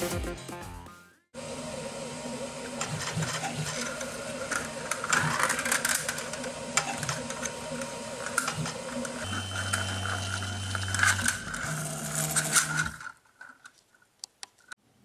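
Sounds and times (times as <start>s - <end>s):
stepper motors humming: 1.4s - 13.2s.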